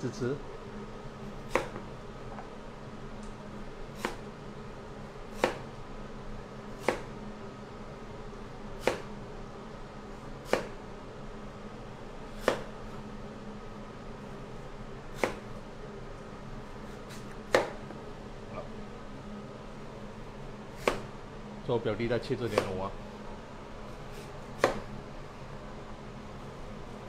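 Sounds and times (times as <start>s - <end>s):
steady low hum: 0.0s - 27.0s
knife chopping on cutting board: 1.5s - 1.9s, 4.0s - 4.3s, 5.3s - 5.7s, 6.8s - 7.2s, 8.8s - 9.2s, 10.4s - 10.8s, 12.4s - 12.7s, 15.1s - 15.5s, 16.9s - 17.9s, 20.8s - 21.1s, 22.4s - 22.8s, 24.1s - 24.9s.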